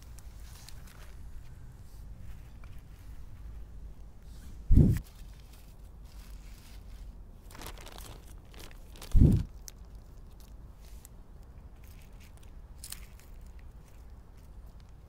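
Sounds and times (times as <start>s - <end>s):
plastic crinkling: 5.0s - 15.0s.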